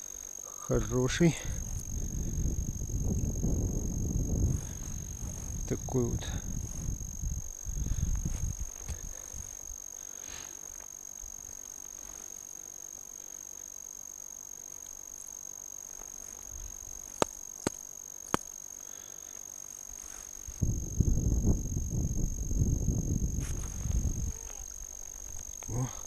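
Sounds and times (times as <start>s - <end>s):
faint high-pitched whine: 0.0s - 26.0s.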